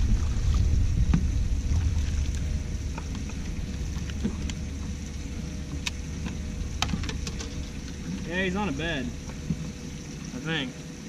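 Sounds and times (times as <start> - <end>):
wind buffeting microphone: 0.0 - 10.1.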